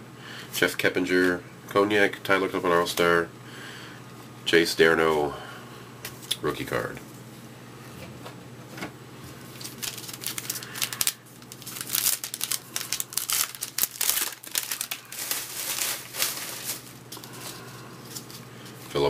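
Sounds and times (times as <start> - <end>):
card pack wrapper crinkling and tearing: 9.5 - 17.5.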